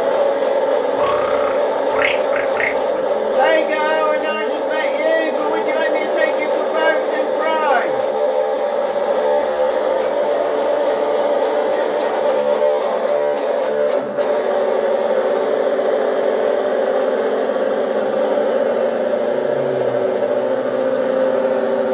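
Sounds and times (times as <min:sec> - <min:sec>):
distorted electric guitar: 0:01.0 - 0:03.0
high ticking pulse: 0:01.0 - 0:03.0.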